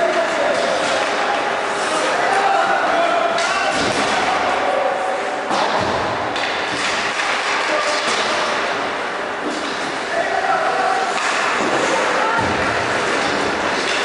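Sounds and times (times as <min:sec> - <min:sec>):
arena noise hum: 0:00.0 - 0:14.0
sticks hitting puck: 0:00.1 - 0:02.5, 0:03.4 - 0:04.6, 0:05.5 - 0:10.0, 0:10.8 - 0:14.0
skates scraping ice: 0:00.2 - 0:02.5, 0:06.4 - 0:14.0
thud: 0:05.5 - 0:07.4, 0:11.2 - 0:14.0.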